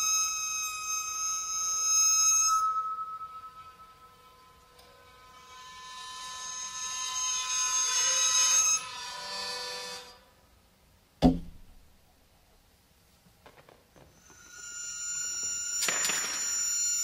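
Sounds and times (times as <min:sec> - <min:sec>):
high metallic ringing scrape: 0:00.0 - 0:10.4, 0:14.1 - 0:17.0
sharp knock with low thud: 0:11.2 - 0:11.8.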